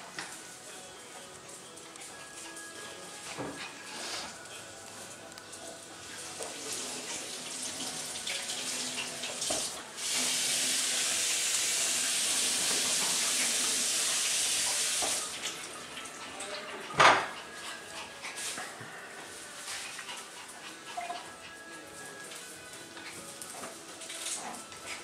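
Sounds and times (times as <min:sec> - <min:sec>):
tap running into sink: 0:09.4 - 0:09.8.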